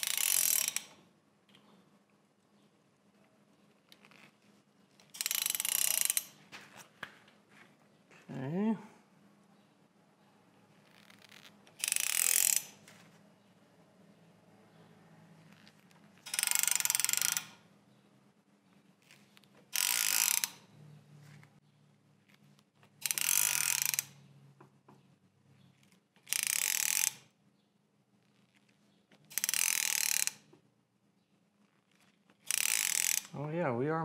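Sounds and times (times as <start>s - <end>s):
ratchet wrench clicking: 0.0s - 1.0s, 5.1s - 6.4s, 11.0s - 12.8s, 16.2s - 17.6s, 19.7s - 20.6s, 23.0s - 24.2s, 26.2s - 27.2s, 29.3s - 30.5s, 32.4s - 33.4s.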